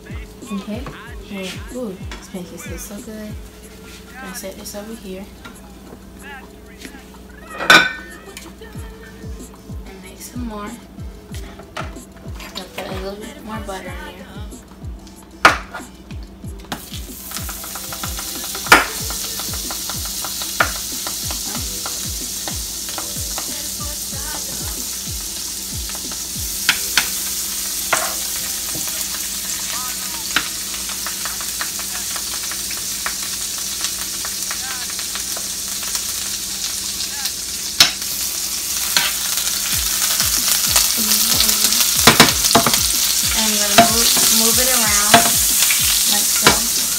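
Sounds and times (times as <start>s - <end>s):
butter sizzling in a pan: 0.0s - 14.5s, 15.4s - 46.9s
kitchen utensils knocking: 7.6s - 8.1s, 17.4s - 23.2s, 27.9s - 29.2s, 42.0s - 42.8s, 43.6s - 45.5s.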